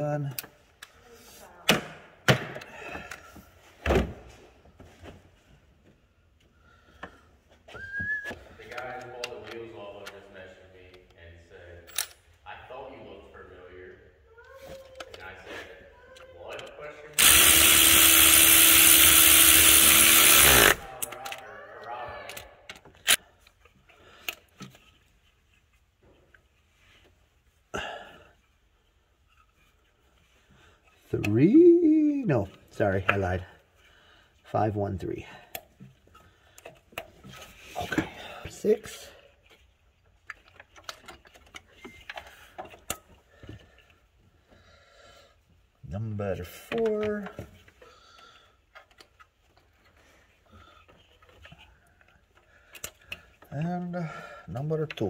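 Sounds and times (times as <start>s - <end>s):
tools clicking and knocking: 39.4s - 44.0s, 50.7s - 53.8s.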